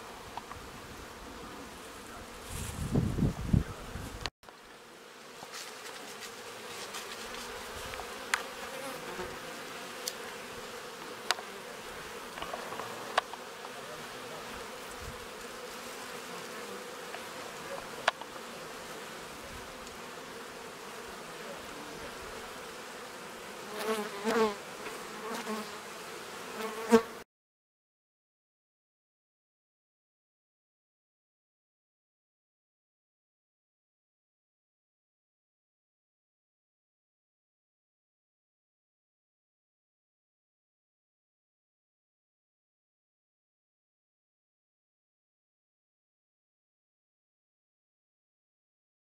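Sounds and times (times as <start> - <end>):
bees buzzing past close by: 0.0 - 27.2
honeybees buzzing: 0.0 - 27.2.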